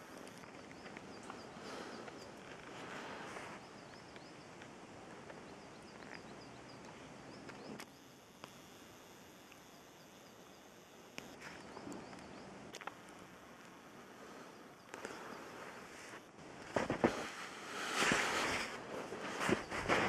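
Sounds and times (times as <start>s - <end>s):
small birds chirping: 0.0s - 20.0s
sharp clicks: 3.9s - 13.8s.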